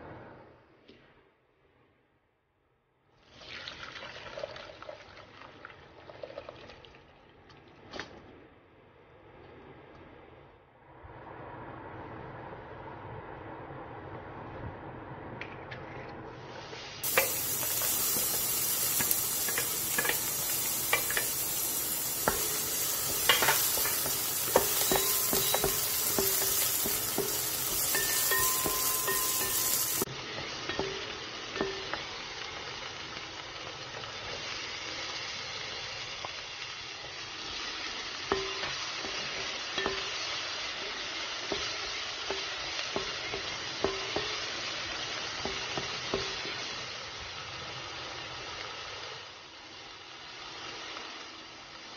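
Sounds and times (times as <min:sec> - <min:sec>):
vegetables sizzling in frying pan: 0:16.6 - 0:51.9.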